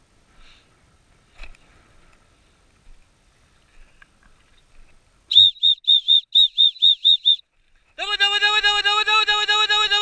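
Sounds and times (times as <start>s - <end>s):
dog whistle pips: 5.3s - 7.4s.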